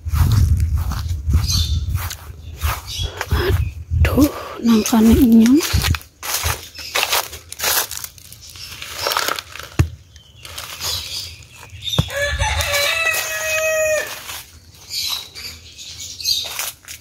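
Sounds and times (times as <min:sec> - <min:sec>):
knocks and rustles: 0:08.9 - 0:11.0
rooster crowing: 0:12.0 - 0:14.4.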